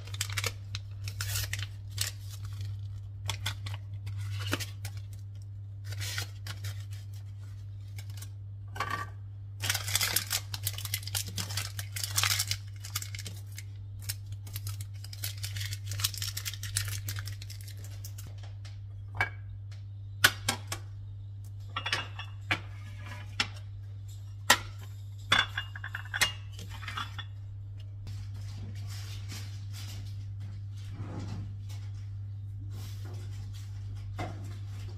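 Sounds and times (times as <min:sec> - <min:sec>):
steady low hum: 0:00.0 - 0:34.9
dishes and utensils clinking: 0:24.4 - 0:27.4.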